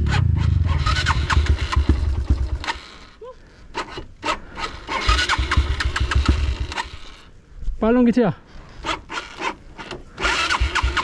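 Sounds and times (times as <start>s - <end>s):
dirt bike engine rumble: 0.0s - 7.3s.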